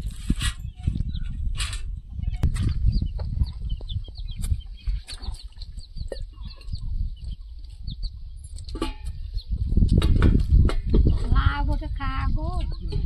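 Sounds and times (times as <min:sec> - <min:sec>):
steady low rumble: 0:00.0 - 0:13.0
chicks cheeping: 0:00.2 - 0:11.3, 0:12.4 - 0:13.0.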